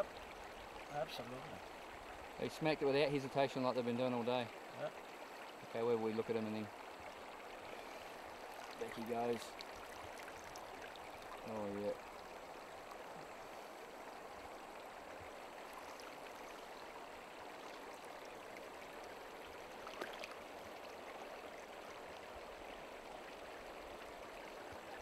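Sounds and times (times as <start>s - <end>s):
river water rushing over stones: 18.1s - 22.9s.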